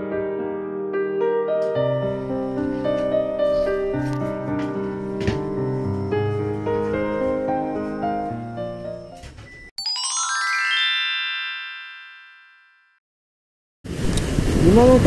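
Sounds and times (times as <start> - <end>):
piano background music: 0.0 - 12.7.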